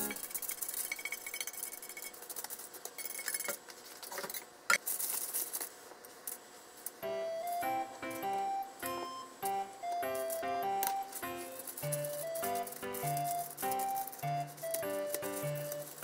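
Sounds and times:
chopsticks scraping breadcrumbs: 11.0s - 16.0s.

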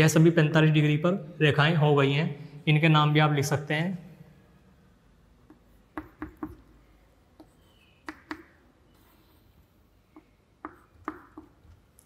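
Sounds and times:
chalk tapping on blackboard: 5.4s - 6.8s, 7.4s - 9.2s, 10.1s - 12.0s.

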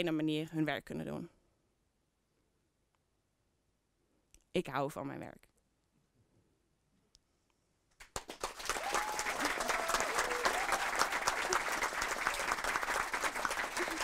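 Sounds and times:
audience applause: 8.0s - 14.0s.

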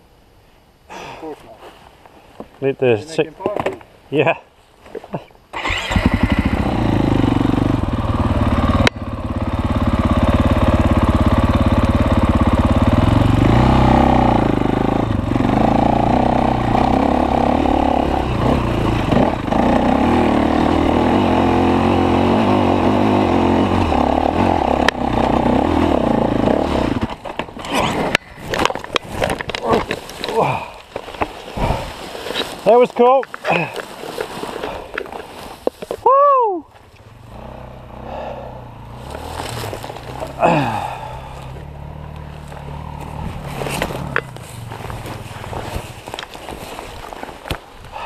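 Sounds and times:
dirt bike engine revving: 5.6s - 28.6s, 37.0s - 46.3s.

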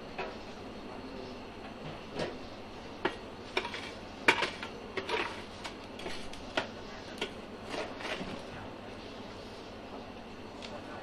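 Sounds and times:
metal scoop scraping charcoal: 3.5s - 6.4s, 7.6s - 8.3s.

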